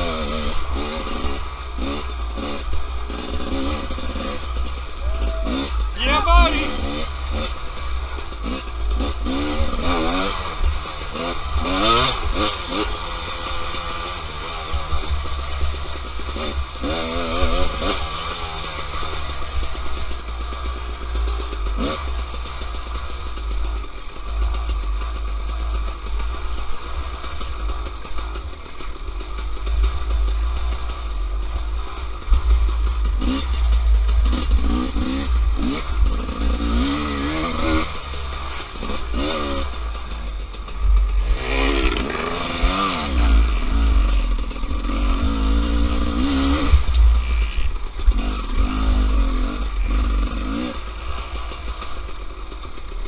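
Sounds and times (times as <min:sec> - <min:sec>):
dirt bike engine revving: 0:00.0 - 0:53.0
deep rumble: 0:29.1 - 0:52.8.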